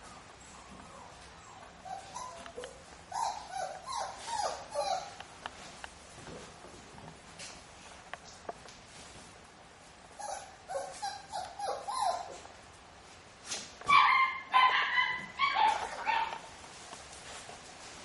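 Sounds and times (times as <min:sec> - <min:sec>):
puppies yipping and barking: 0:00.0 - 0:05.2, 0:10.2 - 0:12.4, 0:13.8 - 0:16.5.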